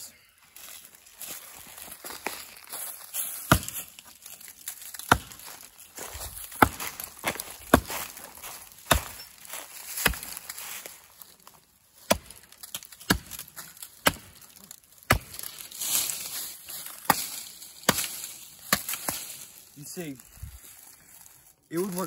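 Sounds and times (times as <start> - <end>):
axe chopping wood: 3.4 - 3.9, 4.9 - 5.6, 6.2 - 10.6, 12.0 - 19.4.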